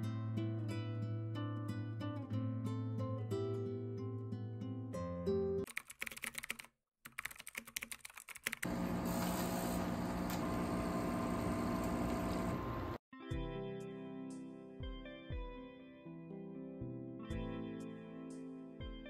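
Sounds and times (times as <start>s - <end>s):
guitar background music: 0.0s - 5.6s, 13.2s - 19.0s
keyboard typing clicks: 5.7s - 8.7s
coffee machine whirring: 8.6s - 13.0s.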